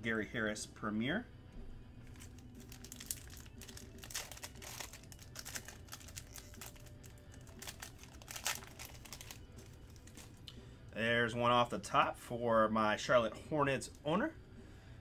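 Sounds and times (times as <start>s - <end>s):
foil wrapper crinkling: 2.0s - 10.4s.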